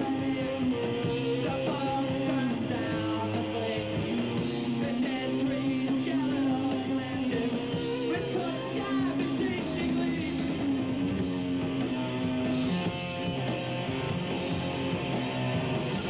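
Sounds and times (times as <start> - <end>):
person singing: 0.0 - 10.7
electric guitars: 0.0 - 16.0
punk rock band playing live: 0.0 - 16.0.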